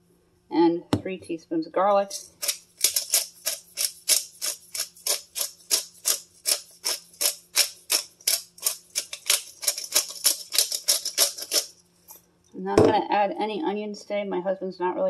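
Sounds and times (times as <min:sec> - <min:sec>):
spice shaker rattling: 0:02.1 - 0:12.2.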